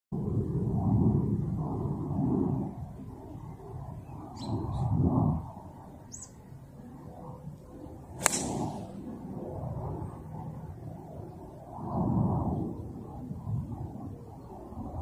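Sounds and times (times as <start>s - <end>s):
wind rumble on microphone: 0.1s - 15.0s
bird chirps: 4.4s - 4.8s, 6.1s - 6.4s
golf club striking ball: 8.2s - 9.0s.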